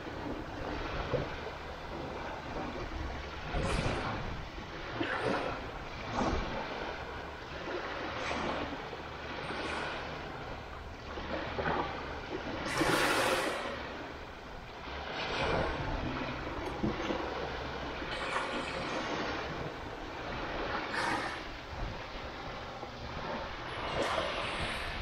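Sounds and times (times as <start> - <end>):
low rumble: 0.0 - 25.0
waves washing in: 0.0 - 25.0
wind noise on microphone: 0.0 - 25.0.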